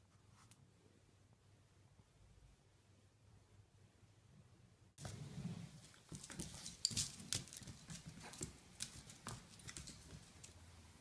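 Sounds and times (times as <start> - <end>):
puppy claws clicking on hardwood: 6.1 - 10.6.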